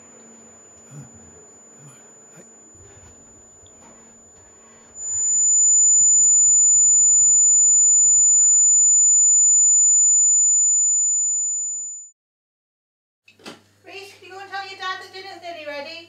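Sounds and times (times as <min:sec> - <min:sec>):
high-pitched ringing tone: 0:04.0 - 0:12.2.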